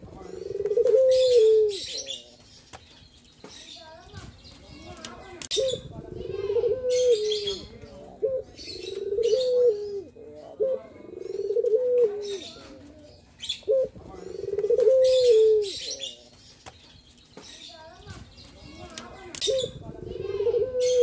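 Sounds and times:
birds chirping: 0.0 - 21.0
dove cooing: 0.1 - 2.2, 5.5 - 16.2, 19.4 - 21.0.

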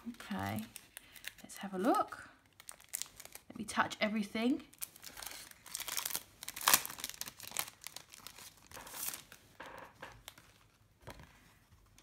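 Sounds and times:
cellophane crinkling: 0.0 - 3.6, 4.6 - 10.8.

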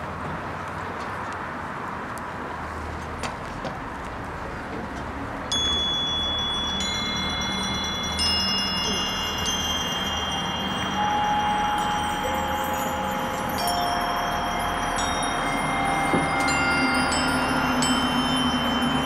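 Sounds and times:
ringing chime-like tones: 5.5 - 19.0.

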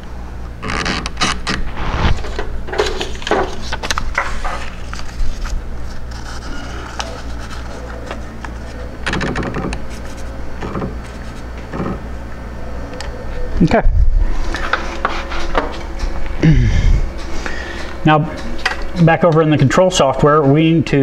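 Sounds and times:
steady low hum: 0.0 - 21.0
paper and controller handling: 1.2 - 10.4, 11.0 - 11.6.

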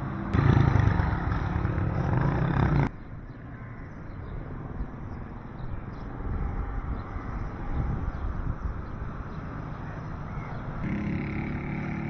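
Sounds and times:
vehicle engine rumbling: 0.0 - 3.2
street ambience: 0.0 - 12.0.

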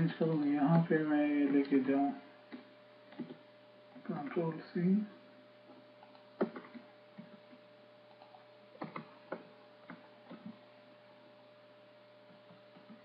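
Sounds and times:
faint electrical hum: 0.0 - 13.0
keyboard and mouse clicks: 2.5 - 3.4, 6.0 - 10.6, 12.3 - 13.0.

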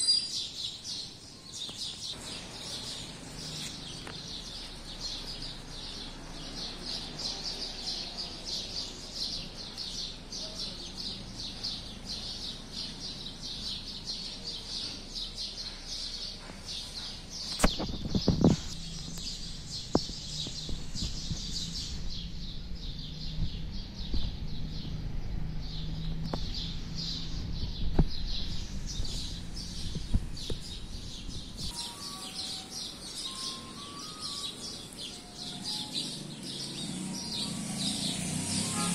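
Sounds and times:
birds chirping: 0.0 - 38.9.

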